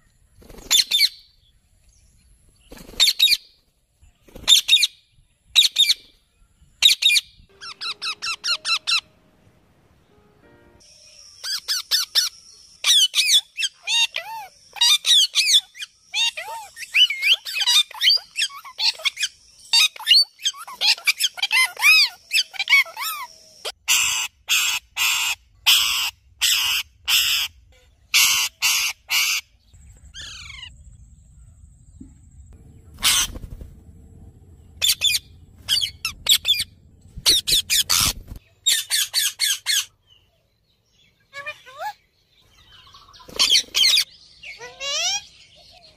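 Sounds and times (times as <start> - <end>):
parakeets chirping and whistling: 6.8 - 9.2, 11.3 - 27.5, 32.9 - 33.6, 34.8 - 39.9
parakeets screeching: 6.9 - 9.1, 11.4 - 27.5, 28.1 - 29.4, 30.2 - 30.7, 32.9 - 33.6, 34.8 - 39.9, 43.2 - 45.4
parakeets chattering: 32.6 - 39.9.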